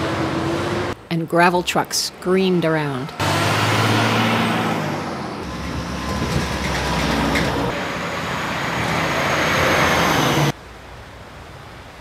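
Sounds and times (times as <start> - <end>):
heavy trucks driving by: 0.0 - 1.0, 3.0 - 10.6
road noise: 0.0 - 12.0.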